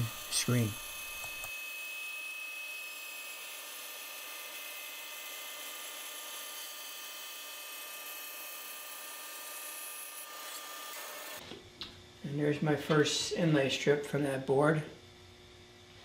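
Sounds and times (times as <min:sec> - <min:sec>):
bandsaw cutting wood: 0:00.0 - 0:01.7, 0:02.4 - 0:11.4.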